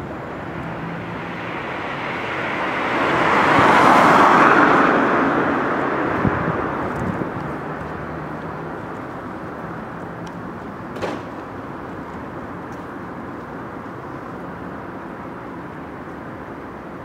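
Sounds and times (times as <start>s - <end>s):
passing vehicle: 0.0s - 17.0s
street traffic rumble: 0.0s - 17.0s.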